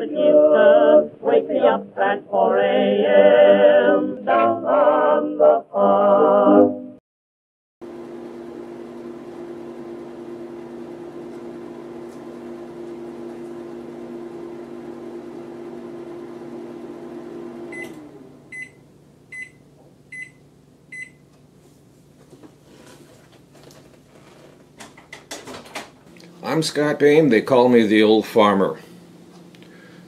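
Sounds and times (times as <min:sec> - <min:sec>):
microwave oven humming: 0:07.8 - 0:30.0
microwave beeps: 0:17.7 - 0:21.3.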